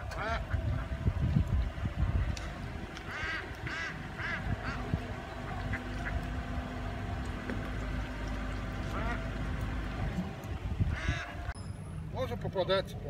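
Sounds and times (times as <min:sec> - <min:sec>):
ducks quacking: 0:00.0 - 0:01.1, 0:02.4 - 0:10.2, 0:10.8 - 0:11.5
low steady hum: 0:00.0 - 0:13.0.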